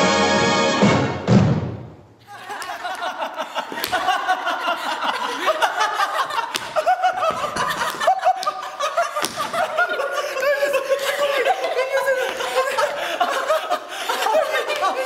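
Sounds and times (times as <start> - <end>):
people laughing: 2.2 - 15.0
hands smacking: 3.7 - 4.2, 6.4 - 9.8.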